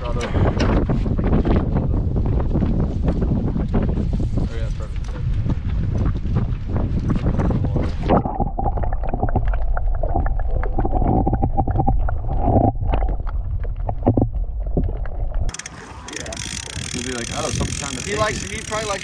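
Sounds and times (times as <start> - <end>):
wind buffeting microphone: 0.0 - 15.6, 16.2 - 19.0
muffled underwater water rumble: 5.1 - 15.5
scattered clicks: 15.5 - 19.0.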